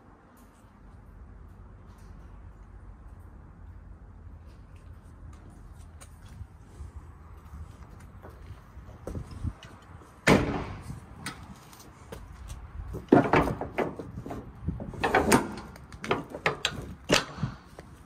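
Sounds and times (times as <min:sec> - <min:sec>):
knocks and clatters: 0:12.9 - 0:17.5.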